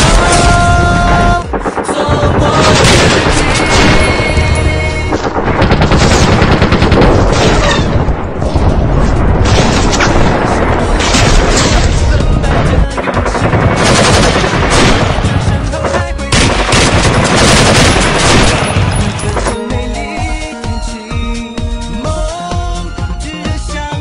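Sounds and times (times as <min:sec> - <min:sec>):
loud background music: 0:00.0 - 0:06.7, 0:10.2 - 0:24.0
rapid gunfire: 0:00.0 - 0:19.8.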